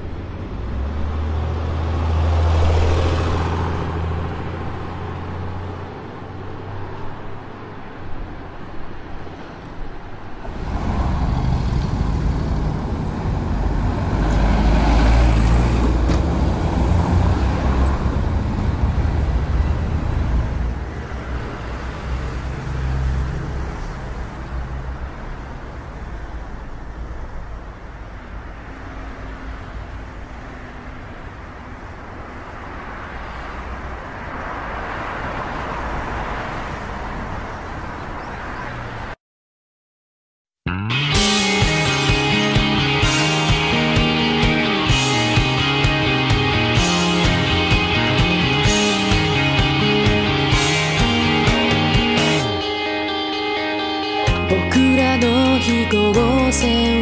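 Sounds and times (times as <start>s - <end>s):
vehicles passing on street: 0.0s - 39.2s, 40.7s - 57.0s.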